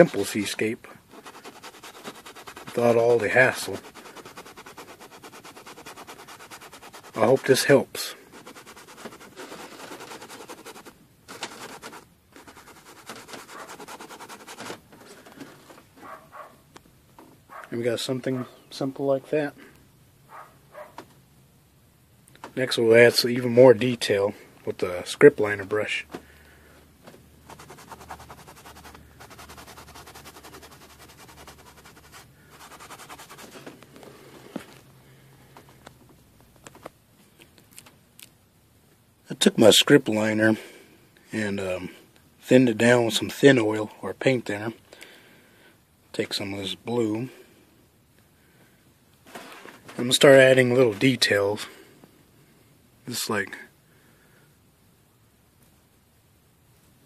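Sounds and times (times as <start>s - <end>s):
paintbrush scrubbing on canvas: 0.0s - 14.8s, 27.4s - 33.7s.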